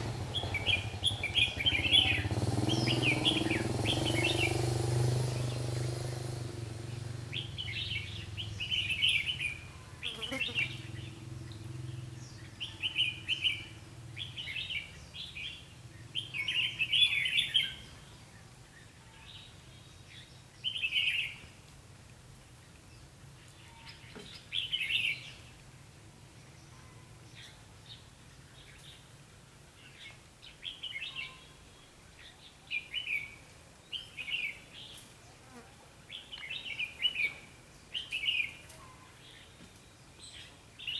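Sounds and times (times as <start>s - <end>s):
birds chirping: 0.0s - 21.6s, 22.5s - 25.6s, 36.1s - 40.9s.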